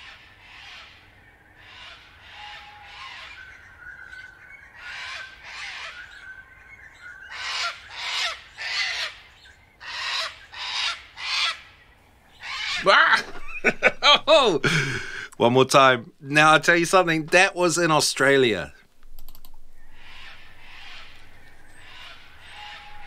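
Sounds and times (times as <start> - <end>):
cockatoo screeching: 12.4 - 15.3, 19.7 - 23.0.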